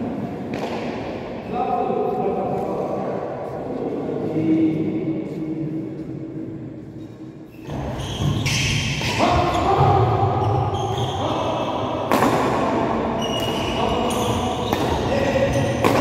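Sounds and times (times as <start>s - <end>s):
rackets smacking shuttlecock: 0.5s - 1.2s, 14.7s - 16.0s.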